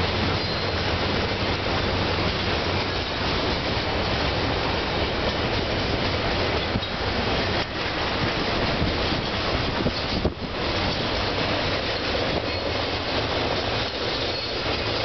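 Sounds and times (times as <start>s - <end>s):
train wheels rolling on rails: 0.0s - 15.0s.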